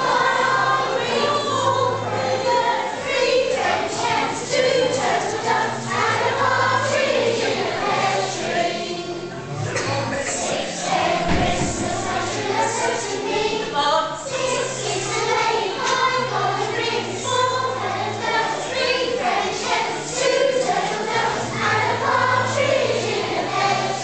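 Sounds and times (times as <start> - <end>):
children's choir singing: 0.0 - 24.0
low instrumental accompaniment: 0.0 - 24.0.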